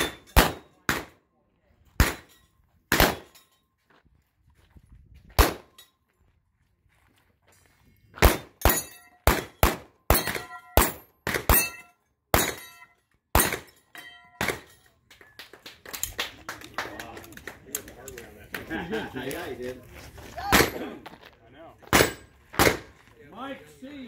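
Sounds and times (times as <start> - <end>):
handgun shots: 0.0 - 1.1, 2.0 - 2.3, 2.9 - 3.4, 5.4 - 5.7, 21.9 - 22.9.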